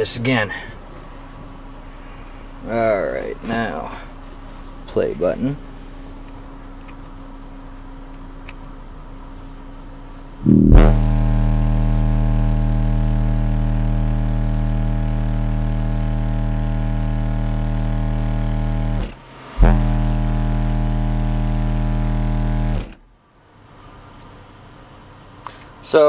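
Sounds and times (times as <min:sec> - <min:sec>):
subwoofer buzzing drone: 0:10.2 - 0:23.1.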